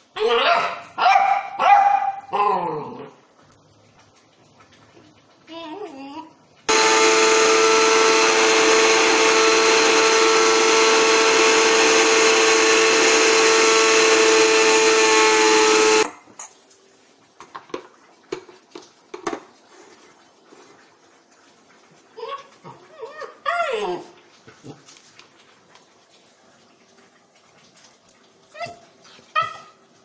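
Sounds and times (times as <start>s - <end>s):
mixer grinder motor whine: 6.7s - 16.1s.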